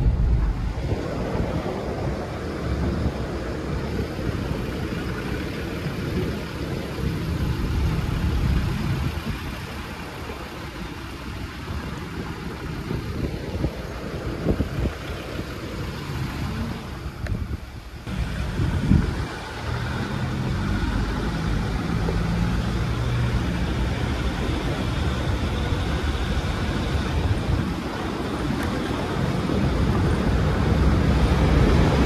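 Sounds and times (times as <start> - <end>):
low drone: 0.0 - 10.8
car engine running: 0.0 - 32.0
road and tyre noise: 0.0 - 32.0.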